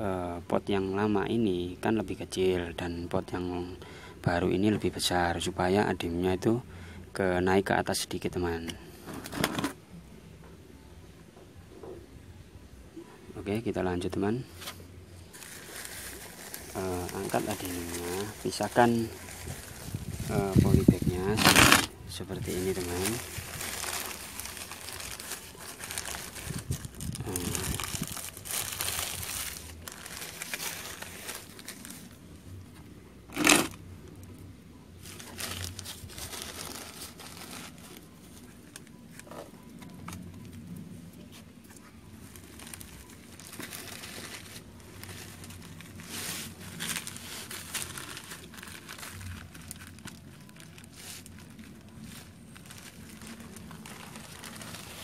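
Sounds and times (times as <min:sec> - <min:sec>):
plastic bag crinkling and tearing: 0:14.7 - 0:32.3, 0:33.3 - 0:33.8, 0:35.0 - 0:39.3, 0:42.1 - 0:55.0.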